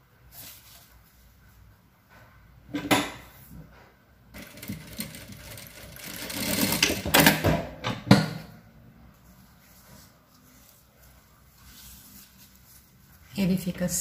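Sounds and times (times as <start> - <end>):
sewing machine rattling: 4.3 - 7.5.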